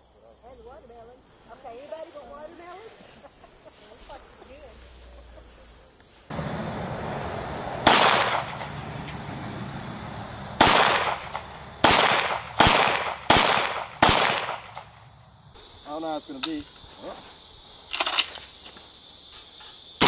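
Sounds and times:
handgun shots: 7.9s - 8.6s, 10.6s - 14.9s.

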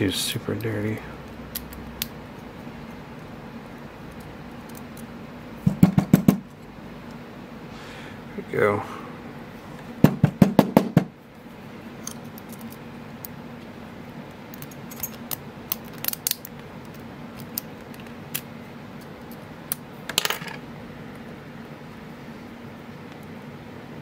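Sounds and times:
padlock pins rattling: 12.0s - 12.8s, 14.5s - 19.5s.

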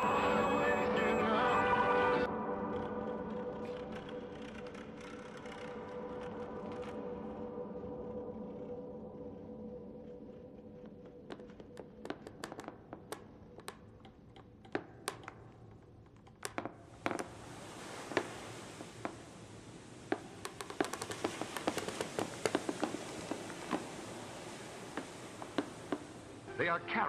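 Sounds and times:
steady hiss: 16.5s - 27.0s.

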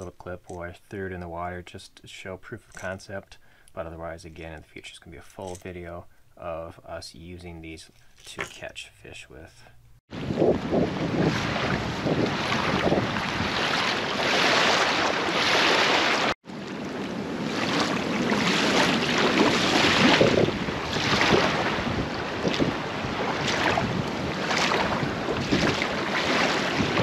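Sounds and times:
wind buffeting microphone: 10.1s - 15.1s, 17.2s - 27.0s
waves lapping over pebbles: 10.8s - 27.0s.

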